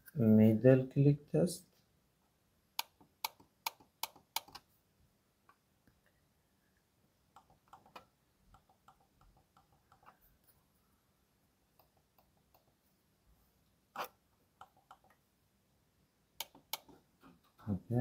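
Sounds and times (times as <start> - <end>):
computer mouse buttons clicking: 2.8 - 4.7, 16.4 - 17.0.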